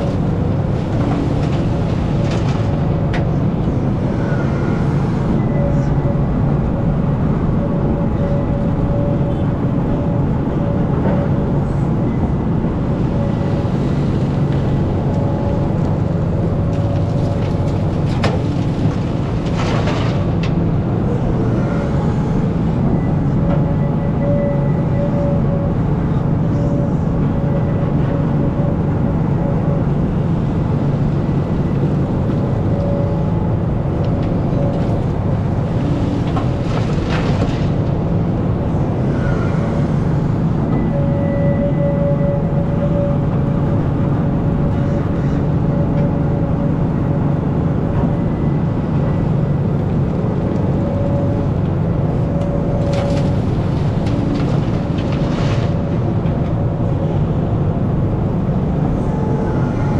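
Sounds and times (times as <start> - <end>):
diesel engine droning: 0.0 - 59.9
hydraulic whine: 3.6 - 16.2.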